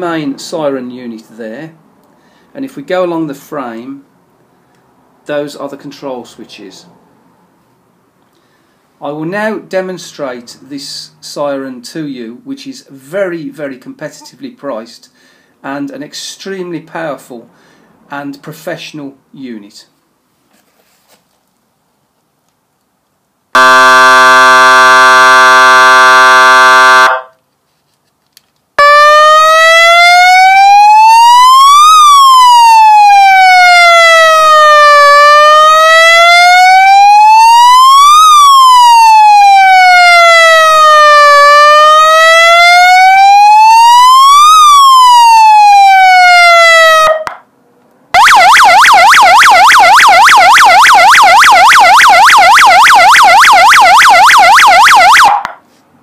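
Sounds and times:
electronic siren wailing and yelping: 23.6 - 27.3, 28.8 - 47.4, 48.2 - 55.5.

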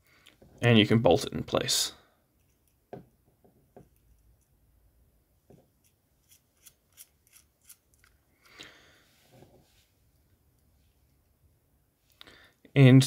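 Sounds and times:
soft rubbing: 9.0 - 11.5.

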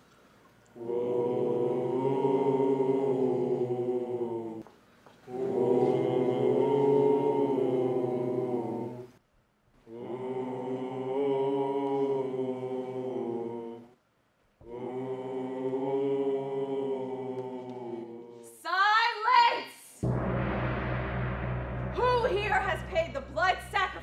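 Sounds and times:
choir singing held chords: 0.7 - 4.6, 5.3 - 9.2, 9.9 - 14.0, 14.6 - 18.5, 20.0 - 24.0
deep steady drone: 20.0 - 24.0.

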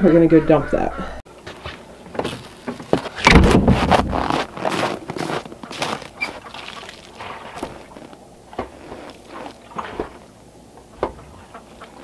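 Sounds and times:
footsteps crunching in snow: 1.4 - 10.2.

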